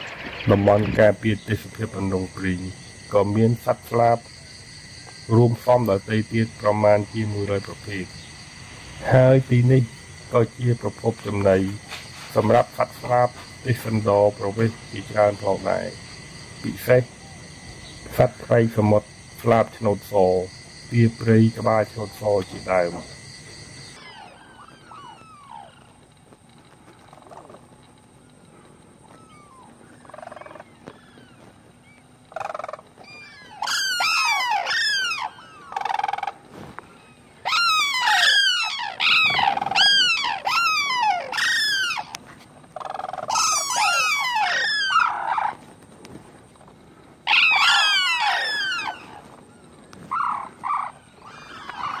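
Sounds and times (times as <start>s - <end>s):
cranes trumpeting calls: 21.6s - 45.8s, 46.6s - 52.0s.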